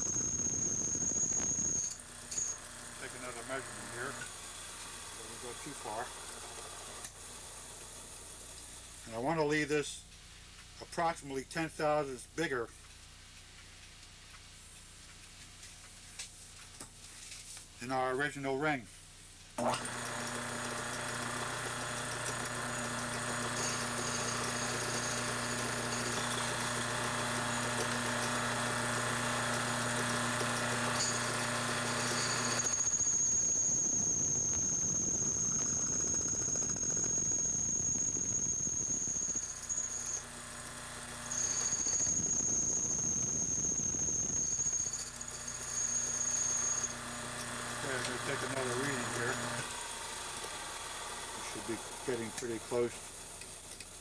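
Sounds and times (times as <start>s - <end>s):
high squeal of cutting tool: 0.0s - 4.3s, 19.7s - 40.4s, 41.1s - 49.8s
lathe running: 0.0s - 4.3s, 19.6s - 53.7s.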